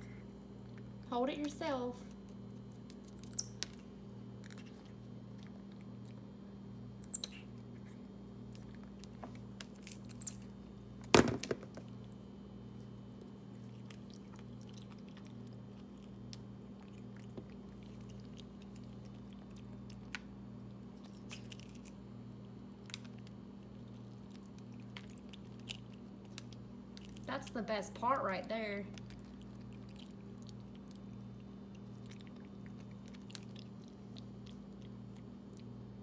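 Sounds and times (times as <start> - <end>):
steady low hum: 0.0 - 36.0
monkey crunching food: 22.7 - 27.3, 29.0 - 35.8.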